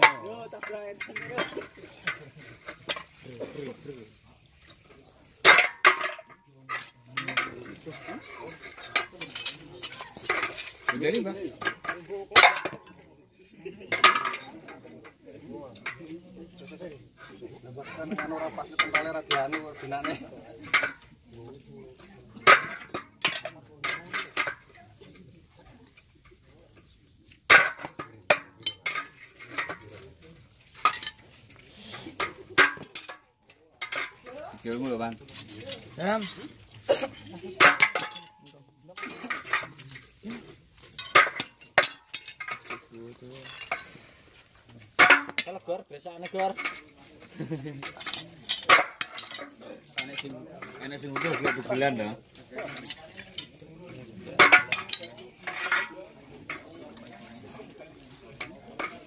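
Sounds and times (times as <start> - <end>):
metal bar clanking on stands: 0.0 - 3.7, 5.4 - 13.0, 13.9 - 16.2, 17.8 - 21.0, 22.4 - 24.8, 30.7 - 34.9, 37.1 - 44.0, 45.0 - 59.0.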